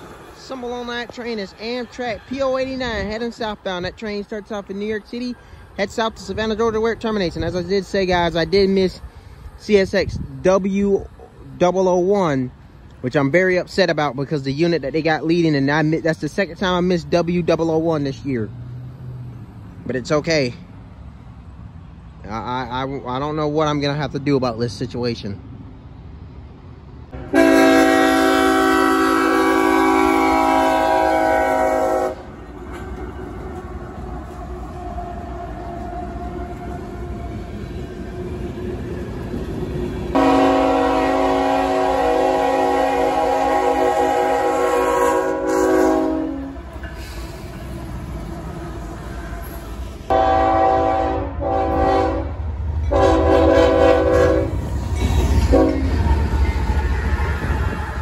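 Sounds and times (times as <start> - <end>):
passing train rumble: 0.0 - 58.0
locomotive air horn chord: 27.2 - 32.3, 40.1 - 47.2, 50.1 - 54.6, 55.4 - 55.9.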